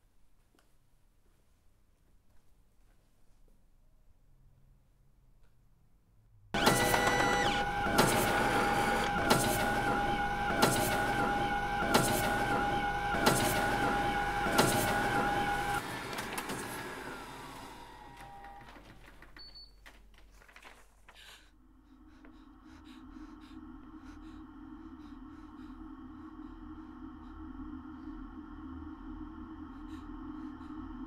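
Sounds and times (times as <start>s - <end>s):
low eerie drone: 6.6s - 15.8s, 21.6s - 31.0s
electric machine humming: 6.6s - 18.7s.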